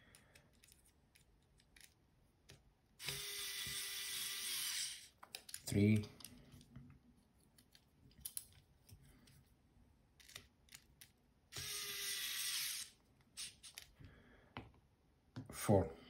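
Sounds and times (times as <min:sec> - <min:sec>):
electric screwdriver whirring: 0:03.0 - 0:05.1, 0:11.5 - 0:13.8
light clicks of parts handled: 0:05.2 - 0:09.5.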